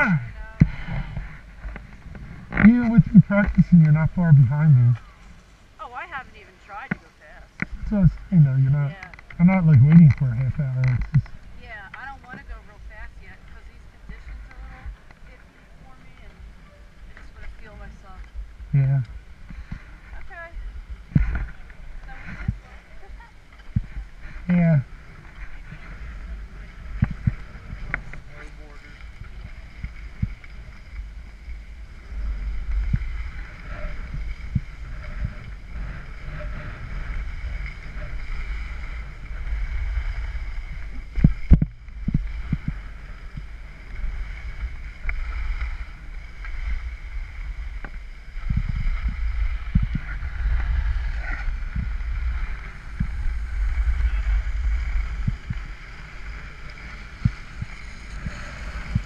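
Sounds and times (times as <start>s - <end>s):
wind buffeting microphone: 0.0s - 59.0s
skis scraping on snow: 18.8s - 59.0s.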